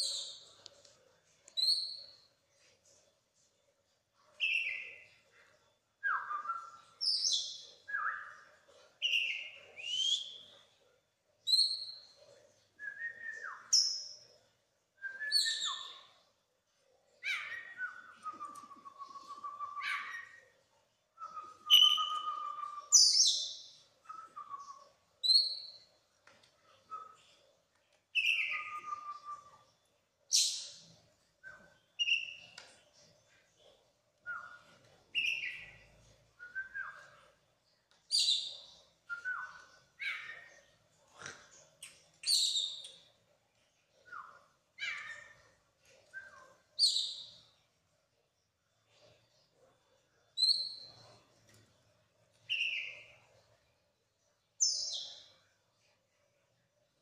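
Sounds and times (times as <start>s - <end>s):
bird singing varied phrases: 4.4s - 5.2s, 6.0s - 10.6s, 15.0s - 16.3s, 17.1s - 20.6s, 21.2s - 25.9s, 28.1s - 32.6s, 34.2s - 37.4s, 38.1s - 40.8s, 41.8s - 43.2s, 43.9s - 47.6s, 52.4s - 53.4s.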